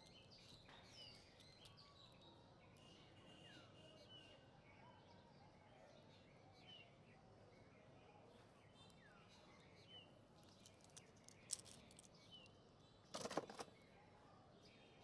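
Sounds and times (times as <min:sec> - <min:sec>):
toy trucks clicking and rattling: 0:10.4 - 0:12.1.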